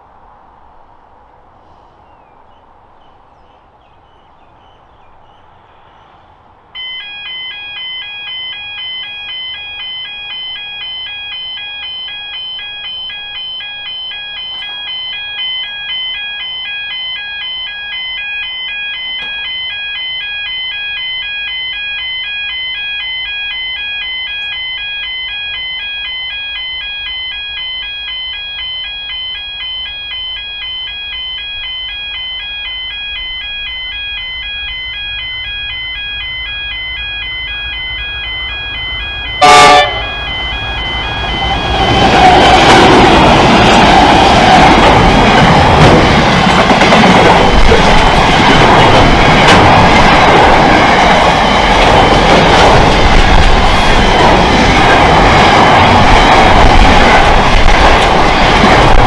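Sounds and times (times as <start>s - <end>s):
faint birdsong: 1.3s - 6.5s
level crossing warning bell: 6.8s - 59.0s.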